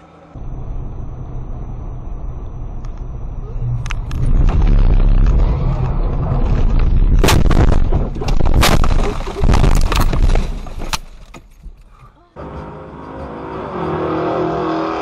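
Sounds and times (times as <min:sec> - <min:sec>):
heavy rumble: 0:00.4 - 0:14.2
car crash impacts crunching: 0:04.1 - 0:11.7.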